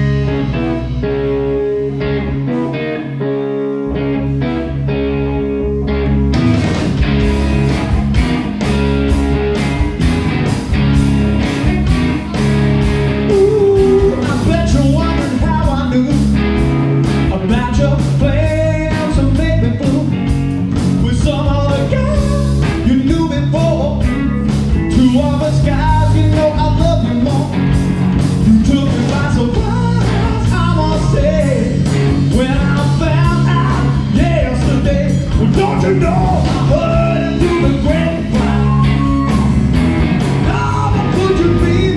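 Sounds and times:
distorted electric guitars: 0.0s - 41.9s
drums: 0.0s - 41.9s
person singing: 13.2s - 16.4s, 21.0s - 24.1s, 28.4s - 39.6s, 40.4s - 41.9s.

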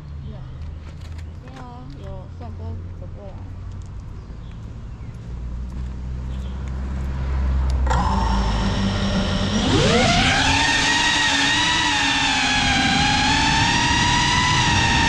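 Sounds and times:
drone motors whining: 7.7s - 15.0s.

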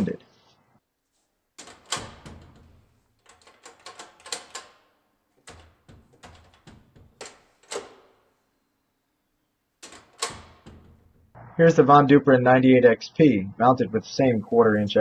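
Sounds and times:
door latch metallic clicks: 1.6s - 8.2s, 9.8s - 11.4s.

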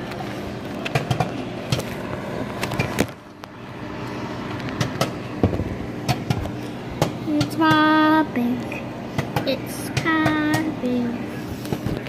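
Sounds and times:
popcorn popping: 0.0s - 3.6s, 4.4s - 8.0s
microwave oven hum: 0.0s - 12.0s.

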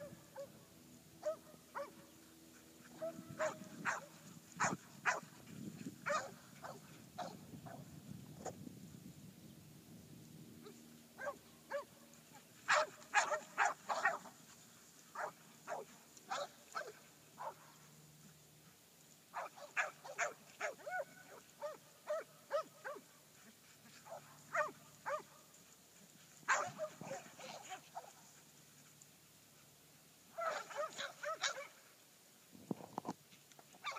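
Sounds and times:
dogs barking: 1.2s - 2.0s, 2.8s - 5.3s, 6.1s - 7.4s, 11.2s - 11.9s, 12.7s - 14.3s, 15.2s - 17.6s, 19.4s - 23.0s, 24.0s - 25.3s, 26.5s - 28.2s, 30.4s - 31.8s.

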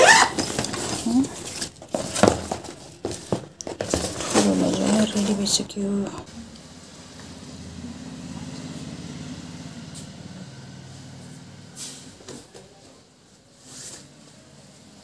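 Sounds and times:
fabric bag rustling: 0.0s - 6.0s.

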